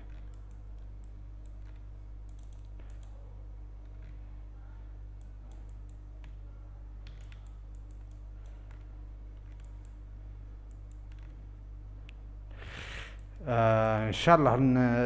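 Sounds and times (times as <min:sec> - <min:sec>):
mouse and keyboard clicks: 0:00.0 - 0:03.2, 0:07.0 - 0:10.0, 0:10.7 - 0:11.4
low electrical hum: 0:00.0 - 0:15.0.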